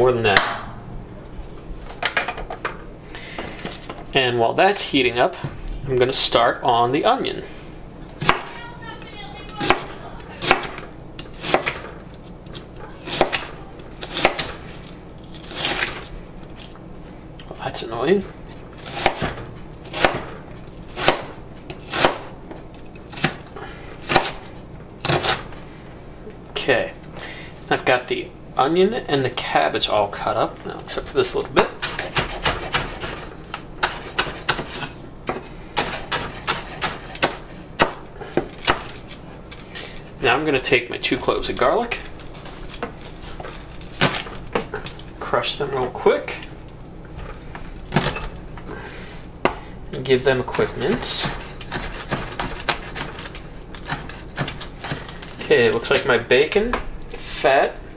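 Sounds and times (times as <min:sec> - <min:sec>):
knife cutting onion on board: 0:09.6 - 0:11.8, 0:13.0 - 0:14.6, 0:15.4 - 0:16.0, 0:18.8 - 0:20.3, 0:20.9 - 0:22.3, 0:24.0 - 0:25.5, 0:31.6 - 0:39.2, 0:50.7 - 0:55.1.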